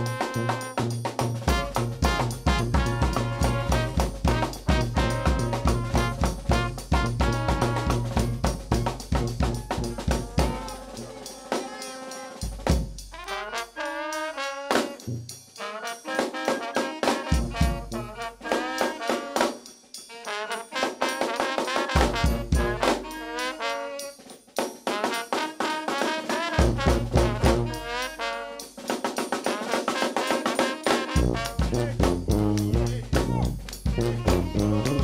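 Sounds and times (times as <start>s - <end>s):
bass drum and snare drum: 0.0s - 19.6s, 20.3s - 24.0s, 24.6s - 35.0s
brass band playing: 0.0s - 35.0s.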